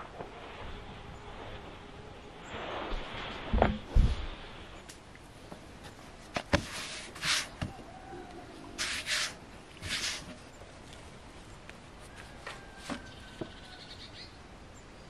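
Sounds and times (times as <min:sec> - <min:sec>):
dough swishing and rustling: 0:05.7 - 0:07.8, 0:08.6 - 0:11.2.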